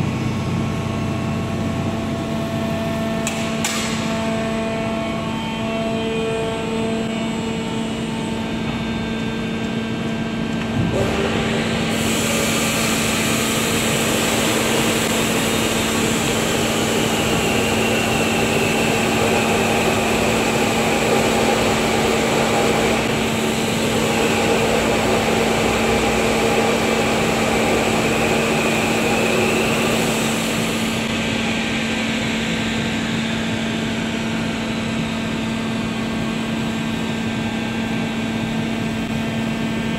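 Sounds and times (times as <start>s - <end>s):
machine humming: 0.0s - 39.9s
rising and falling whine: 0.0s - 39.9s.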